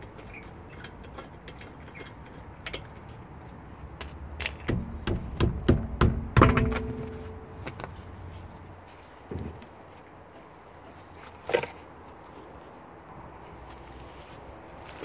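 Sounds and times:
wheel bolts ticking: 0.0 - 7.8
metallic clunks and clinks: 4.0 - 5.0, 6.4 - 7.8.

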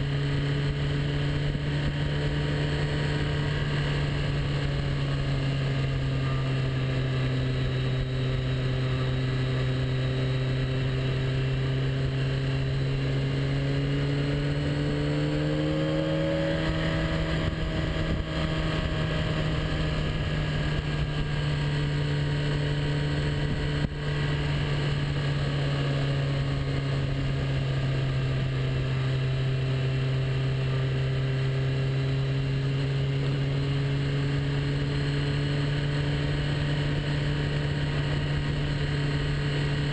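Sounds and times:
motorcycle engine running: 0.0 - 39.9
road noise: 0.0 - 39.9.

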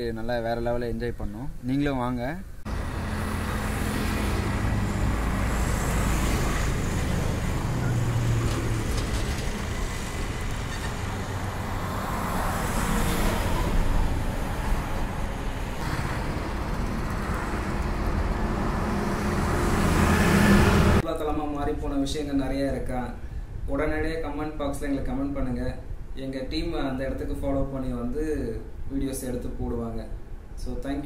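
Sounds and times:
road traffic: 2.6 - 21.0
passing vehicle engines: 2.7 - 21.0.

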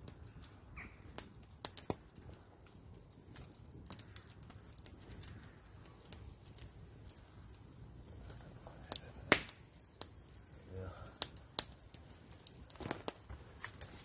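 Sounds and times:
campfire crackling and popping: 0.0 - 14.0
ribs sizzling on grill: 4.9 - 14.0.

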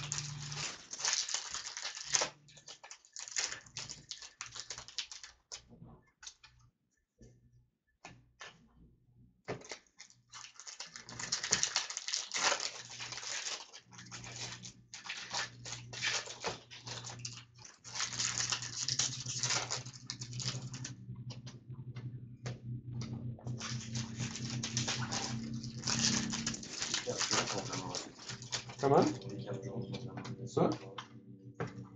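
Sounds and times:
wrappers crinkling and rustling: 0.0 - 5.6, 9.5 - 21.0, 23.5 - 29.3.

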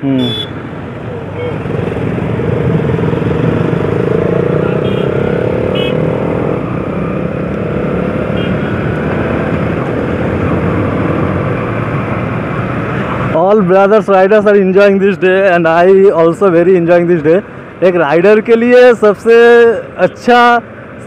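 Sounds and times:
motorcycle engine running: 1.2 - 6.6.

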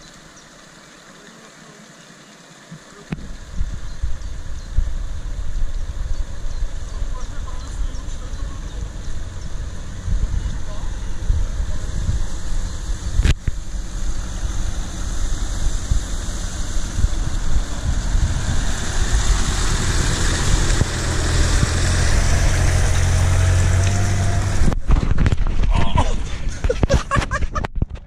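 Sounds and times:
pickup engine running: 3.3 - 25.5.

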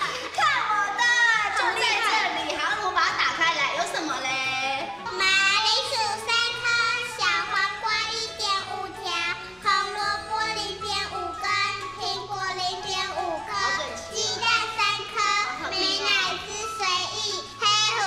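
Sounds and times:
children singing: 5.0 - 18.0.

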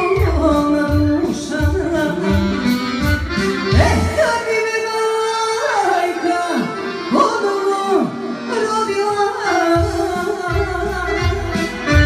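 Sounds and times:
bass and drum beat: 0.0 - 4.1, 9.8 - 12.0
accordion: 0.0 - 12.0.

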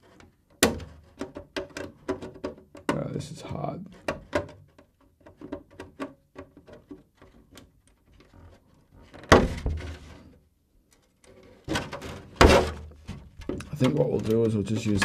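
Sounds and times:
plastic shell crinkling thump: 9.2 - 10.0
plastic shell clicking and crackling: 10.9 - 15.0.

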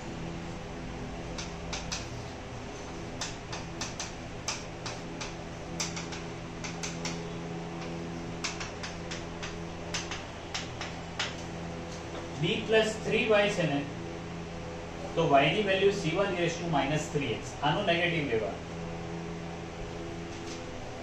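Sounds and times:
steady low hum: 0.0 - 21.0
chalk tapping on chalkboard: 1.4 - 2.2, 3.2 - 11.4.

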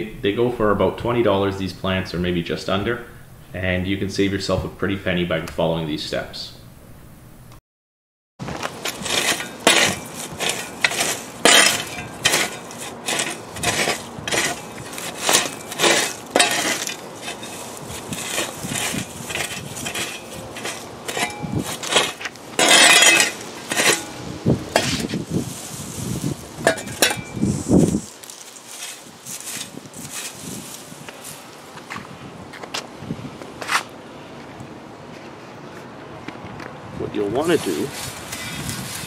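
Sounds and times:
spade scraping mulch and soil: 8.4 - 31.5, 37.4 - 39.0.

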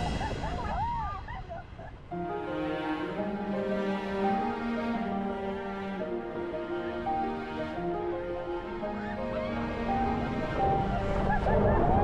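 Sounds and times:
background music with held chords: 2.1 - 12.0.

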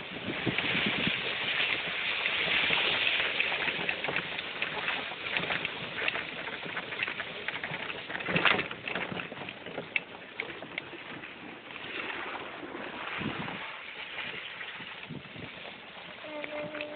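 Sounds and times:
golf cart driving on dirt: 0.0 - 16.9
knocks and rattles: 1.8 - 11.5.

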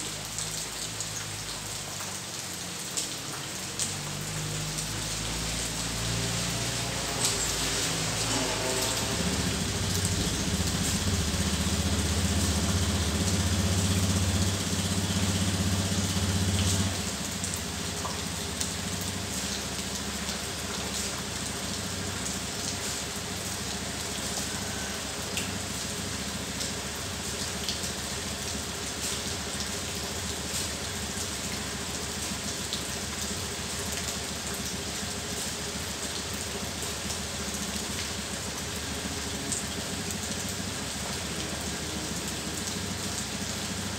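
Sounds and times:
rain hiss: 0.0 - 43.9.

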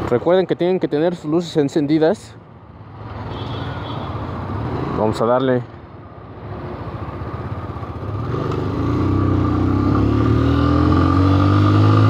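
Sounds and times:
motorcycle engine accelerating: 7.9 - 12.0.

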